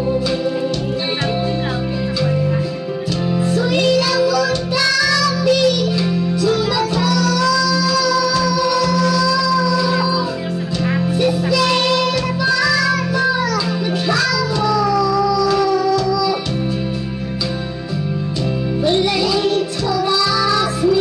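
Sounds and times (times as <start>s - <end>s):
karaoke backing track: 0.0s - 21.0s
girl singing into a microphone: 3.4s - 16.8s, 18.8s - 21.0s.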